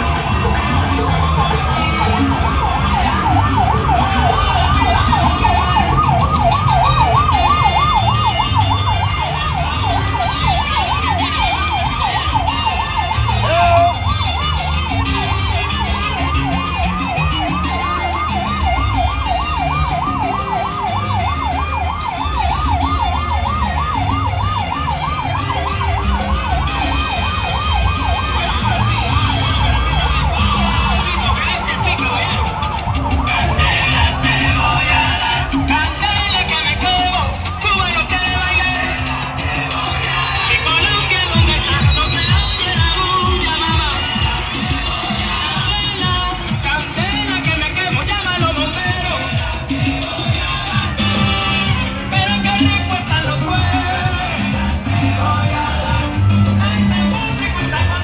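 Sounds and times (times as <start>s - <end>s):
crowd noise: 0.0s - 58.0s
siren yelping: 0.0s - 58.0s
traffic rumble: 0.0s - 58.0s.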